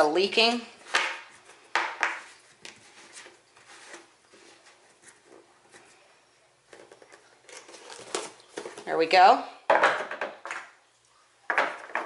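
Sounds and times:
plastic rubbing and scraping: 1.0s - 6.0s, 6.7s - 9.0s.

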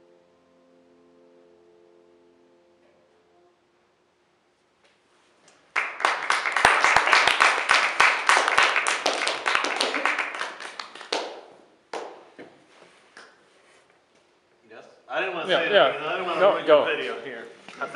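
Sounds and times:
cello and piano notes: 0.0s - 3.9s
audience applause: 5.7s - 12.1s.

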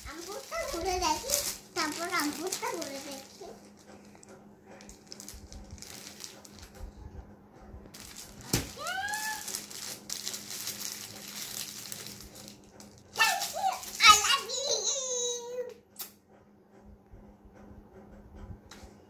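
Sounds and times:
plastic packaging crinkling: 0.0s - 6.8s, 7.9s - 14.7s.

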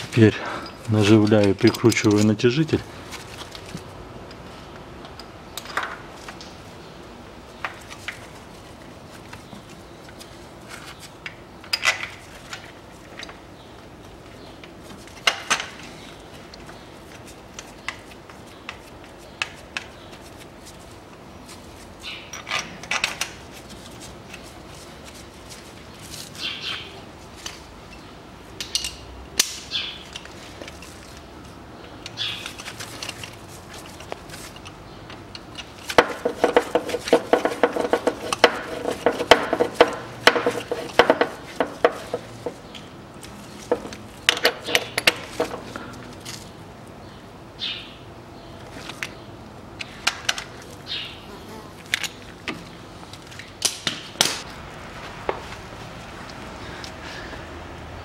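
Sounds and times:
metal tools clinking: 0.5s - 2.5s, 43.6s - 46.4s.

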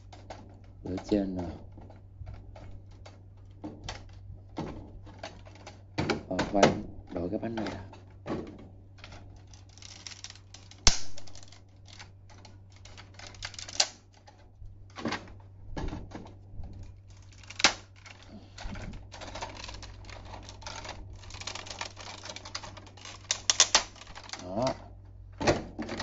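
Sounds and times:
plastic toy parts clicking and rattling: 0.0s - 15.4s, 16.1s - 24.8s
sharp plastic snaps: 9.0s - 14.4s, 17.1s - 24.7s.

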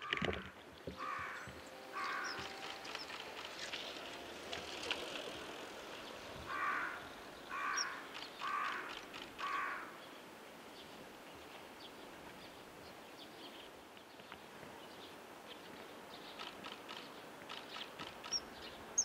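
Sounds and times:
outdoor background noise: 0.0s - 19.0s
crow cawing: 1.0s - 2.8s, 6.5s - 10.0s.

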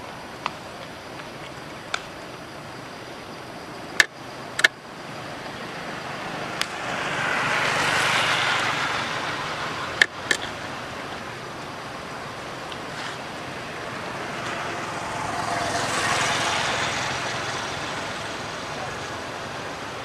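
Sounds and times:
steady background hiss: 0.0s - 20.0s
vehicle passing: 5.0s - 20.0s.

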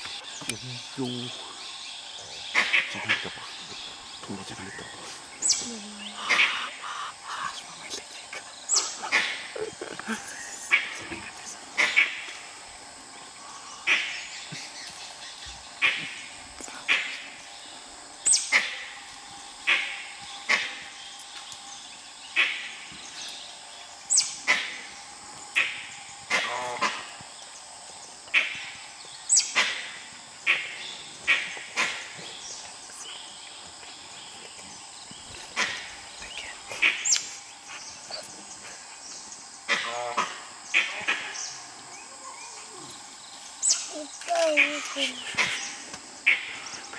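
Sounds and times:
wild dogs alarm calls: 2.4s - 4.1s, 6.2s - 7.6s, 8.5s - 12.6s, 24.1s - 27.2s.

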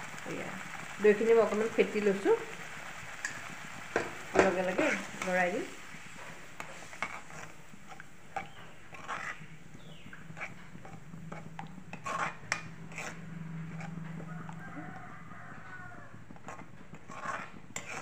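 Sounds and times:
metal spatula scraping pan: 3.2s - 15.0s, 16.4s - 18.0s
spatula clattering: 6.2s - 14.0s, 16.5s - 18.0s
low steady hum: 7.6s - 16.4s.

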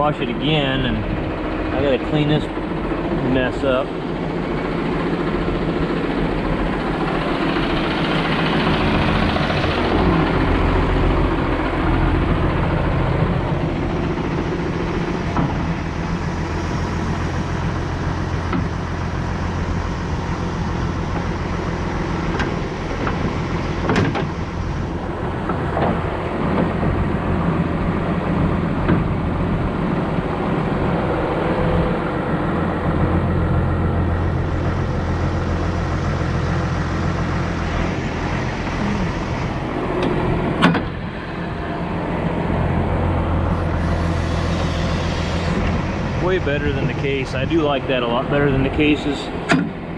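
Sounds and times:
diesel engine running: 0.0s - 49.9s.

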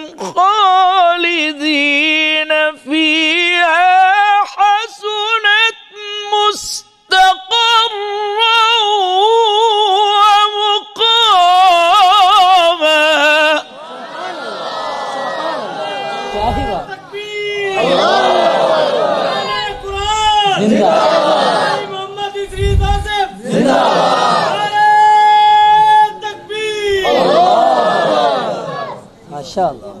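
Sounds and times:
man reciting in melodic chant: 0.0s - 13.8s, 16.3s - 18.4s, 19.4s - 27.2s.

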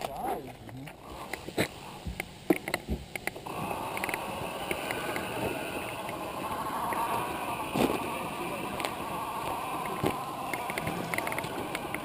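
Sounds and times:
electric motor whirring: 3.4s - 12.0s.

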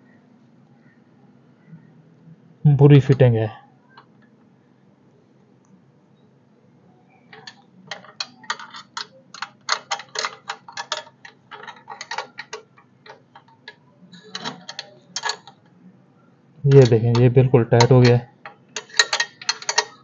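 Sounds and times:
spanner clicking on a nut: 7.3s - 15.6s, 16.7s - 20.0s.

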